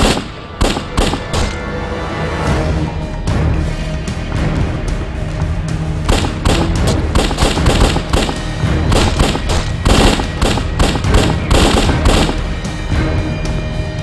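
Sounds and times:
pistol shots: 0:00.0 - 0:01.6, 0:06.1 - 0:12.6
dramatic music: 0:00.0 - 0:14.0.

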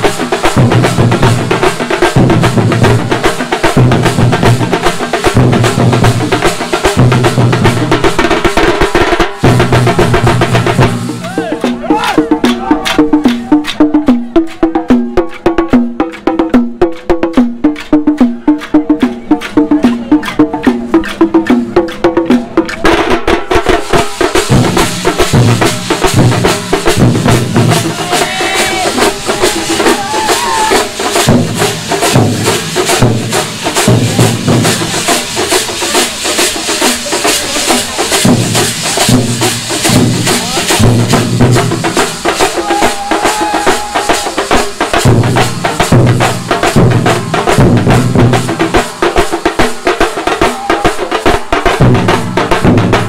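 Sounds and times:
large drums beaten with sticks: 0:00.0 - 0:53.0.

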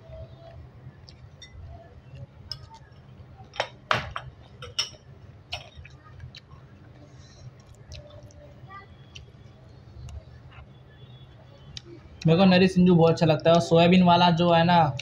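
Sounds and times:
glass dishes clinking: 0:03.6 - 0:05.0.

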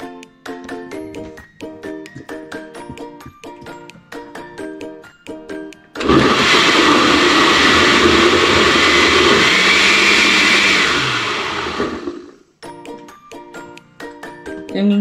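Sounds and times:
tinkly background music: 0:00.0 - 0:06.0, 0:12.6 - 0:15.0
blender motor running: 0:06.0 - 0:12.4.

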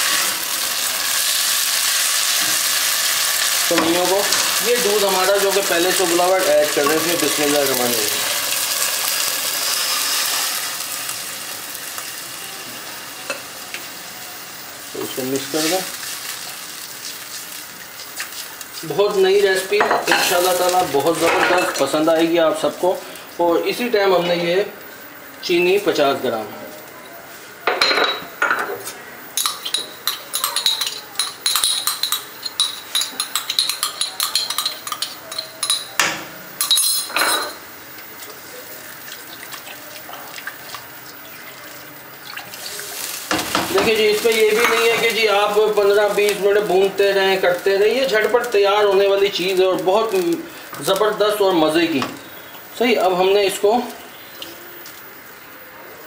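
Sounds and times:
milk sizzling in hot wok: 0:00.0 - 0:27.6, 0:29.0 - 0:55.7
utensil clinking against dish: 0:29.4 - 0:37.6.

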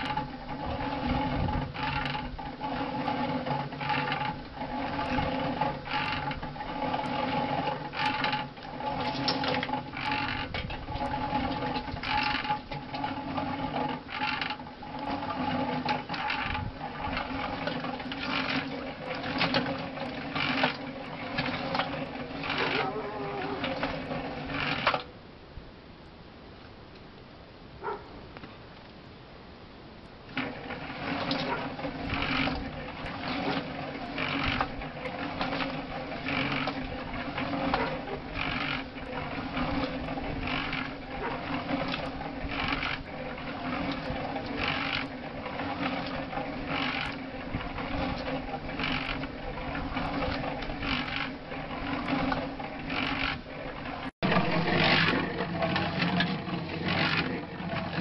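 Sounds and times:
wet mix swishing in a drum: 0:00.0 - 0:25.0, 0:30.3 - 0:58.0
cement mixer running: 0:00.0 - 0:25.1, 0:30.3 - 0:58.0.

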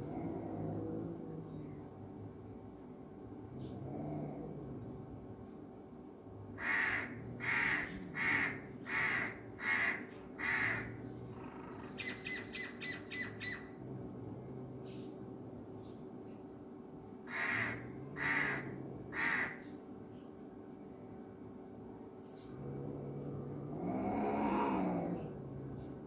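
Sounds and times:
crow cawing: 0:06.6 - 0:11.0, 0:17.3 - 0:19.7.

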